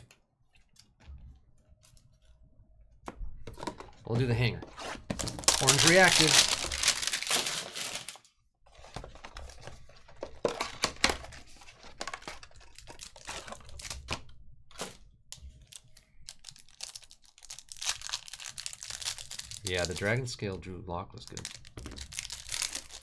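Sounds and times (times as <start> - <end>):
plastic wrapper crinkling and tearing: 5.1 - 8.3, 10.4 - 20.3, 21.2 - 23.0.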